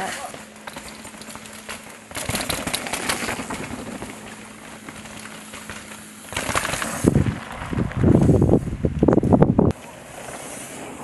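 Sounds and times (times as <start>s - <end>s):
bike tyres on dirt and rock: 0.0s - 11.0s
wind buffeting microphone: 6.7s - 9.8s.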